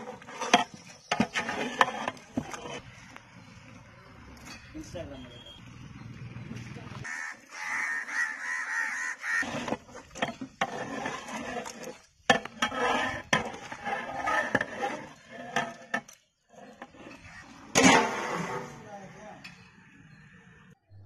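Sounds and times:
ladle stirring and scraping pot: 0.0s - 3.2s, 9.4s - 18.7s.

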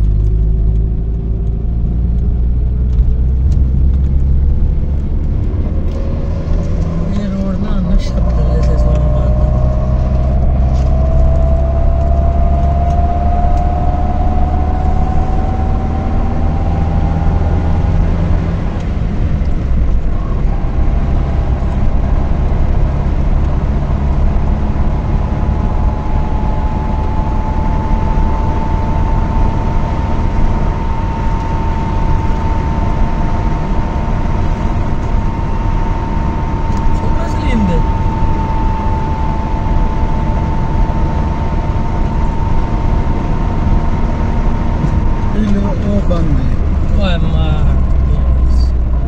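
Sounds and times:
car engine and tyre rumble: 0.0s - 49.0s
faint rising whine: 0.0s - 49.0s.

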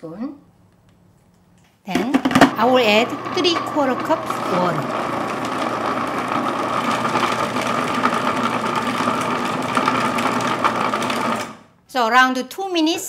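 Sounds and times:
food processor motor whining: 2.3s - 11.7s.

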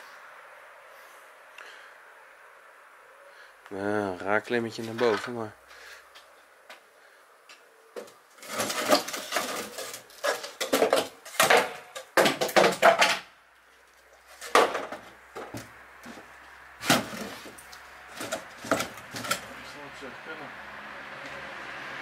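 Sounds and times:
wooden knocks and scrapes: 8.0s - 13.3s, 14.2s - 19.5s.

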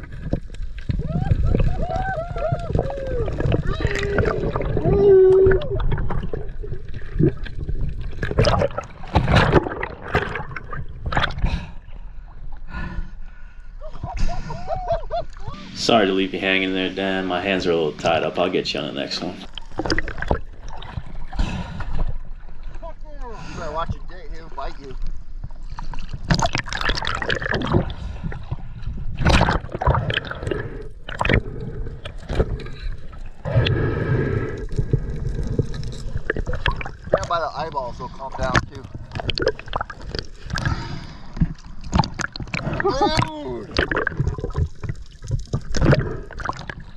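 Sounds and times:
water gurgling underwater: 0.0s - 11.9s, 19.5s - 22.6s, 25.4s - 37.6s, 38.3s - 46.9s.

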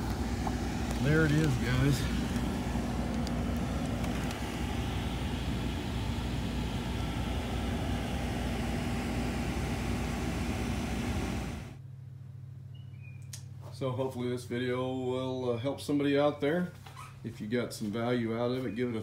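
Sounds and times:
air conditioner fan rushing: 0.0s - 11.8s
quiet motor hum: 0.0s - 19.0s.

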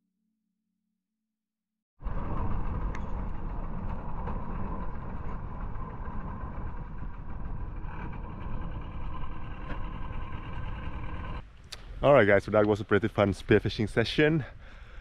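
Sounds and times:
boat engine rumbling: 2.0s - 12.1s.

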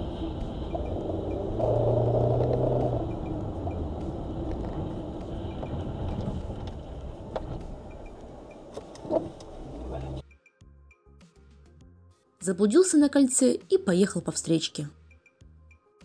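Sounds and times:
car engine and road rumble: 0.0s - 10.2s.

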